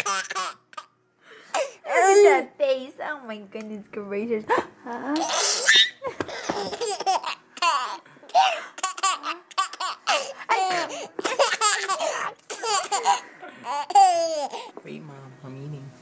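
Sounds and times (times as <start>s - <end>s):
baby laughing: 0.0s - 1.0s, 5.2s - 14.7s.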